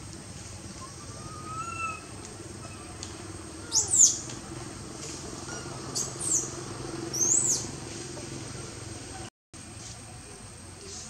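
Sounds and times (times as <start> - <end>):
baby monkey screeching: 1.2 - 2.8.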